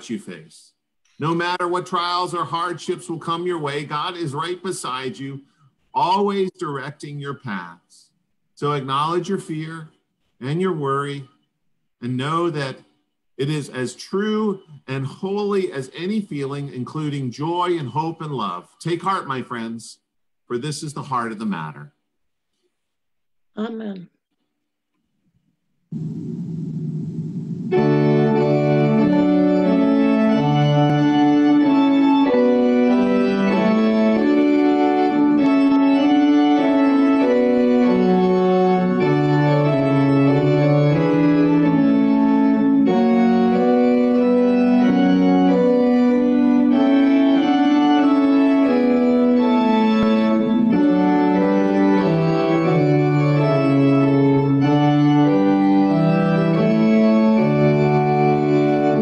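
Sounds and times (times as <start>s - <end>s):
organ playing slow hymn chords: 27.7s - 59.0s.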